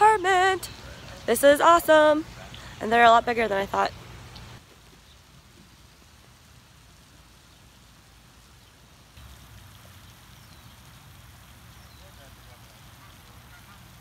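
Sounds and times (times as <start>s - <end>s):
fountain spray splashing: 0.0s - 14.0s.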